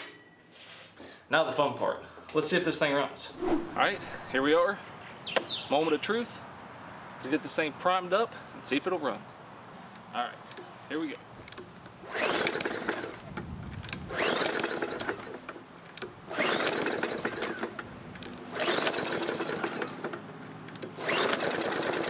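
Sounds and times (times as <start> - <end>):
lawn mower engine firing: 11.5 - 22.0
recoil starter whirring: 12.0 - 20.2, 20.9 - 22.0.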